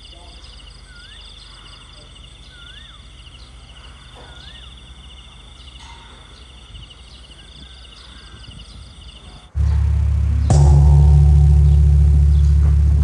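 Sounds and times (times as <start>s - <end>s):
insects chirping: 0.0s - 9.6s
low rumble: 9.6s - 13.0s.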